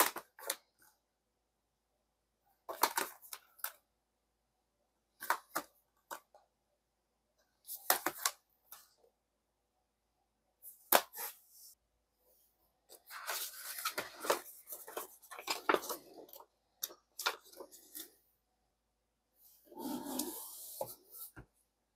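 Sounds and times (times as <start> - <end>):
paper pages rustling: 12.9 - 16.5.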